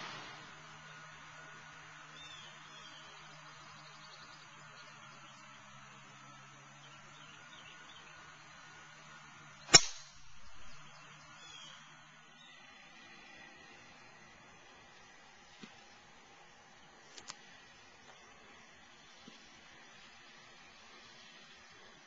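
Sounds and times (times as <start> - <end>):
faint bird chirps: 2.1 - 8.9, 9.5 - 12.8
golf club striking ball: 9.7 - 10.4.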